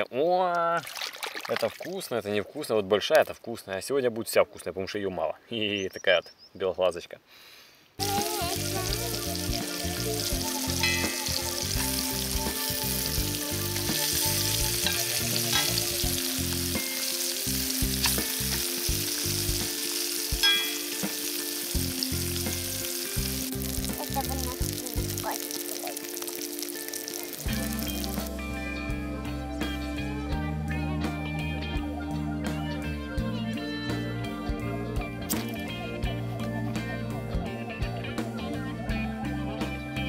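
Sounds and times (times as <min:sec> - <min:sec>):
fish sizzling in a pan: 0:08.0 - 0:28.5.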